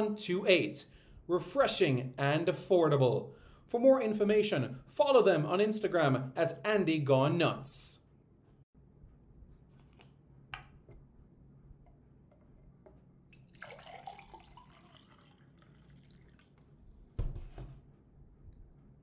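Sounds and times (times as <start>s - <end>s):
liquid pouring into glass: 13.2s - 17.0s
thump: 17.2s - 17.8s.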